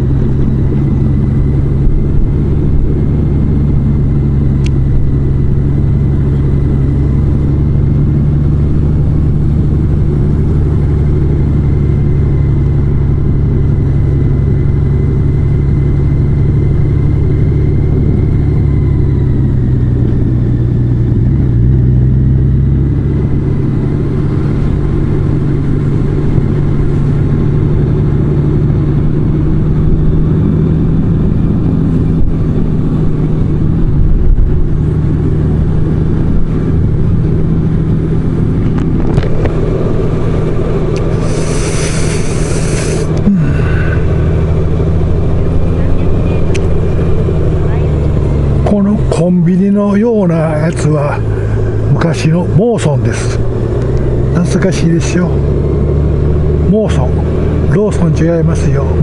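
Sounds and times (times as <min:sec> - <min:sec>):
motorcycle engine running: 0:00.0 - 0:59.0
road noise: 0:00.0 - 0:59.0.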